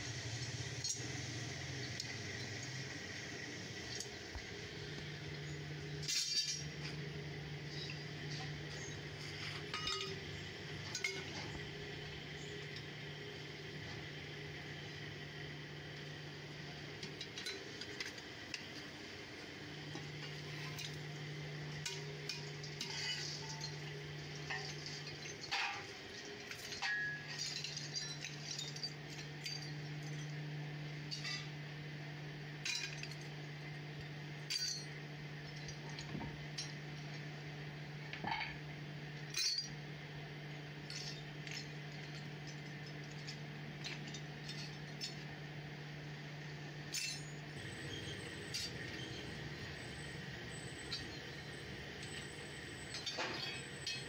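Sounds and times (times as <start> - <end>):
scrap aluminium clinking: 6.0 - 7.0, 7.7 - 10.2, 21.7 - 30.4, 31.1 - 31.5, 34.4 - 35.0, 39.3 - 39.8, 40.9 - 45.3, 46.9 - 54.0.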